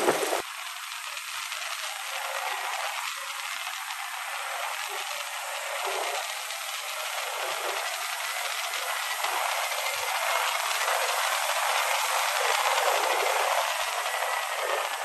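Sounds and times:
wind and road noise: 0:00.0 - 0:00.4.

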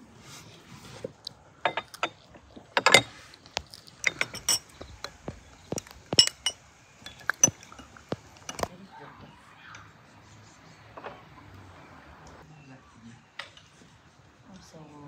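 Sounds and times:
metal spoon clinking on glass: 0:04.0 - 0:04.9, 0:05.7 - 0:08.6.

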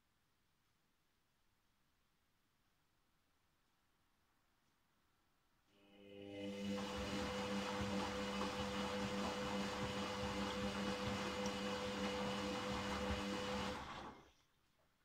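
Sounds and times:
washing machine drum turning: 0:06.6 - 0:14.0.

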